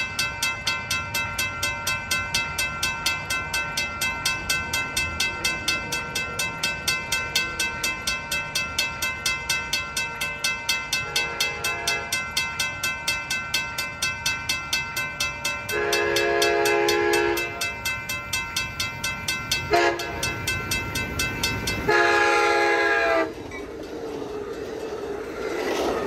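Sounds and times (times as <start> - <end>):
crossing warning bell ringing: 0.0 - 26.0
train horn blasts: 11.0 - 12.2, 15.7 - 17.6, 19.7 - 20.3, 21.9 - 23.4.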